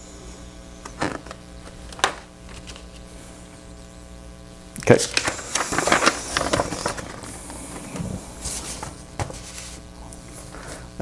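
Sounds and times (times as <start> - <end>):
paper rustling and crackling: 1.0 - 3.1, 4.9 - 9.8.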